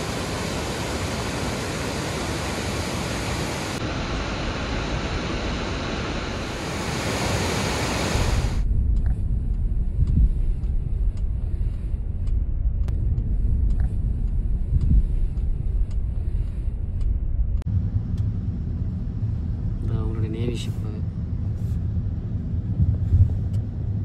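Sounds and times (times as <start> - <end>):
loud rushing hiss: 0.0 - 8.6
steady low rumble: 0.0 - 24.0.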